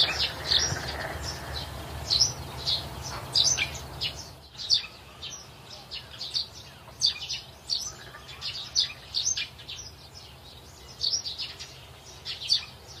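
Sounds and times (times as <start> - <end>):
chicks peeping: 0.0 - 5.5.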